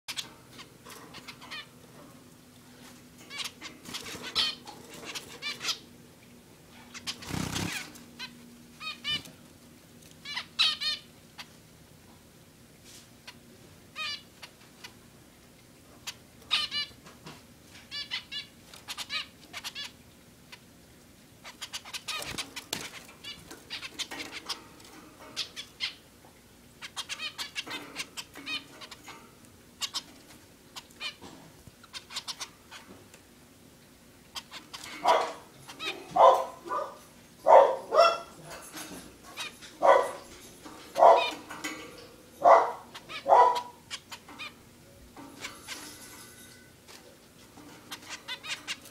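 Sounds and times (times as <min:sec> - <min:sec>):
finches calling and chattering: 0:06.9 - 0:09.3, 0:41.0 - 0:44.6, 0:47.9 - 0:48.9.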